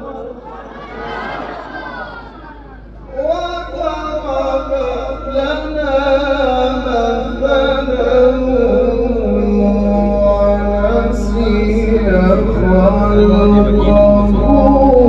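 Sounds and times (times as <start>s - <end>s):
man chanting through a microphone: 0.0s - 0.6s, 3.0s - 15.0s.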